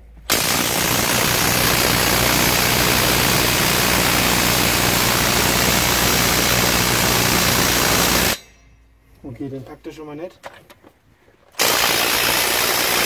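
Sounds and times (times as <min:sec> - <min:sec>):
impact wrench hammering: 0:00.3 - 0:08.7.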